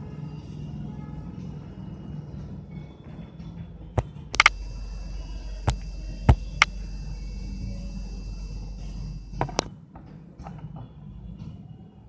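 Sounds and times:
steady low hum: 0.0s - 9.9s
smartphone clicks and knocks: 4.0s - 4.6s.

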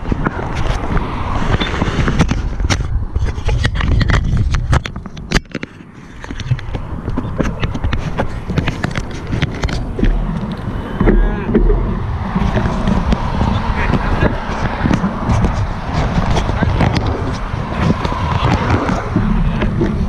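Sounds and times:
bike rattling clicks: 0.0s - 20.0s
bike tyre rumble: 0.0s - 20.0s.

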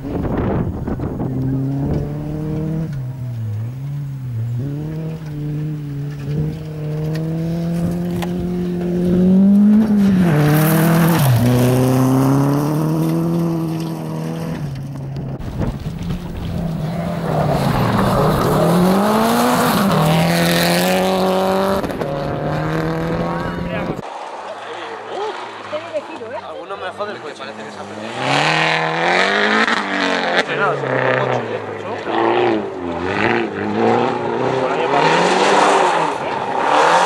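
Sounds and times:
rally car accelerating past: 0.1s - 14.8s, 15.7s - 24.4s
rally car engine revving past: 0.1s - 14.8s, 15.7s - 24.3s, 27.7s - 37.0s.

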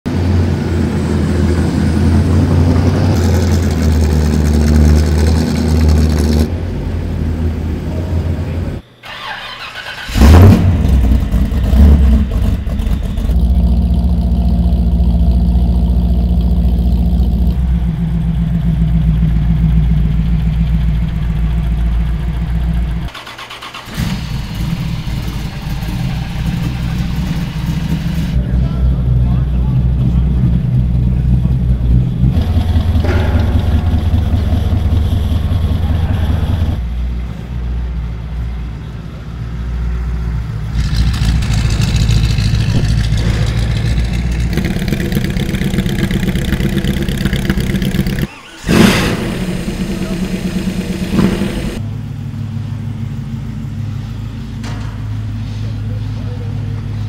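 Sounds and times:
engine revving: 0.1s - 7.7s, 9.1s - 20.7s, 29.6s - 36.9s, 40.5s - 51.9s
car engines idling: 0.1s - 57.0s.

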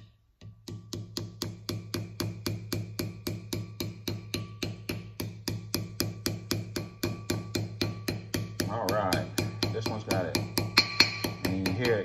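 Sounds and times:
rapid hammer taps on metal: 0.4s - 12.0s.

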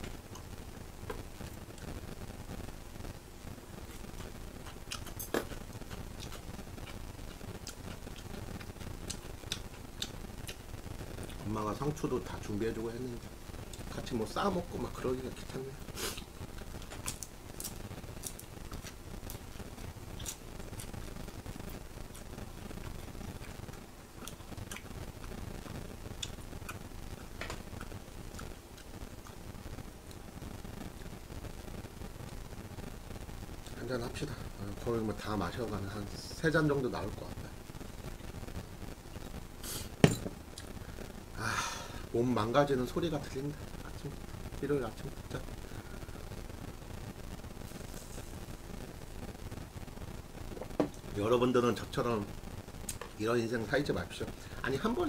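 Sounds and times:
fat popping and crackling: 0.0s - 55.0s
pork sizzling on a grill pan: 13.8s - 23.7s.

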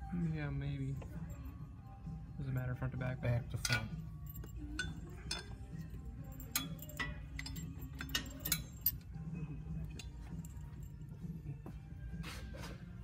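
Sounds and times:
steady low hum: 0.0s - 13.0s
metallic clicks of hand tools: 6.4s - 9.0s.

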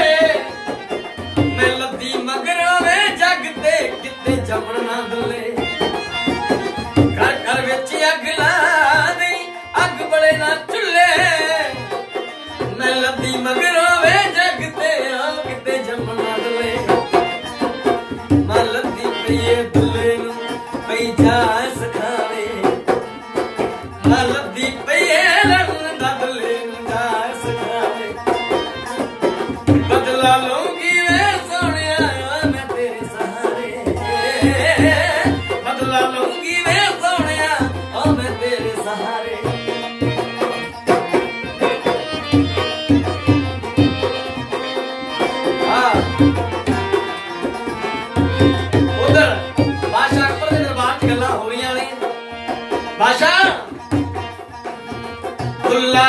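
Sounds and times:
person singing: 0.0s - 6.3s, 29.8s - 40.2s
hand drum rhythm: 0.0s - 56.0s
harmonium: 0.0s - 56.0s
plucked string instrument: 0.0s - 56.0s.

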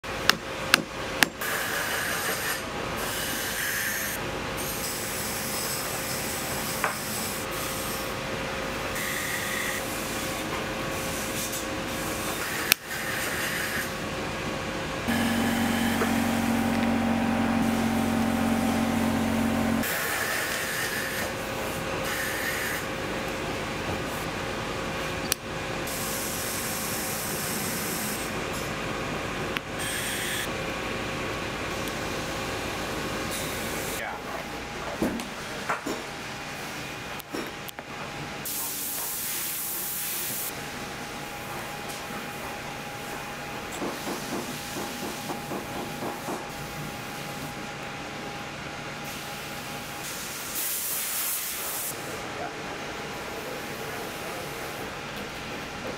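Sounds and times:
machine humming: 15.0s - 19.9s.

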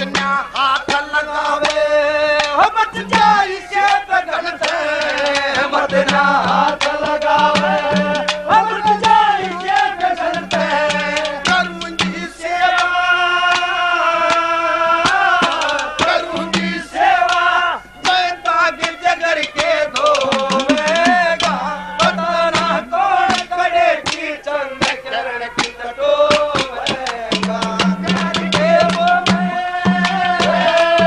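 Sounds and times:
man singing folk song: 0.0s - 31.0s
hand drum strokes: 19.9s - 23.4s.

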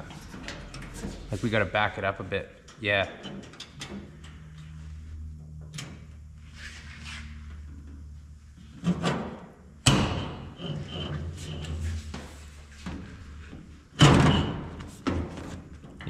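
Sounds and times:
low steady hum: 0.0s - 16.0s
metal knocks and clunks: 8.8s - 12.3s.

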